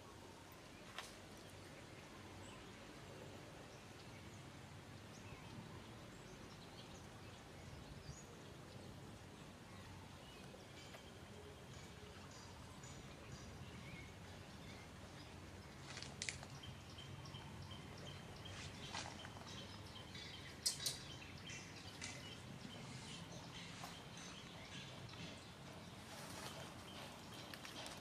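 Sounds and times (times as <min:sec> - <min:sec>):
light chirping: 0:10.4 - 0:28.0.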